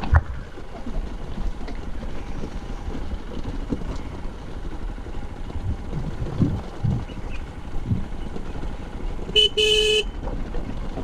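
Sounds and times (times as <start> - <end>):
bike rattling over stones: 0.0 - 9.4, 10.1 - 11.0
dirt bike engine running: 0.0 - 11.0
wind on microphone: 5.5 - 8.6.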